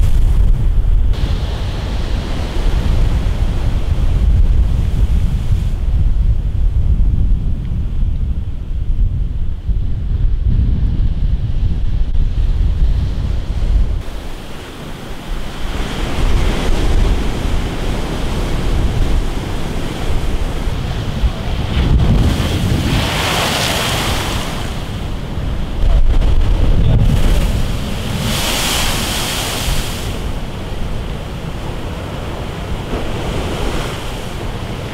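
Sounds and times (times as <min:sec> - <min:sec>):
waves crashing against sea wall: 0:00.0 - 0:05.9, 0:13.6 - 0:34.9
wind rumble on microphone: 0:00.0 - 0:34.9.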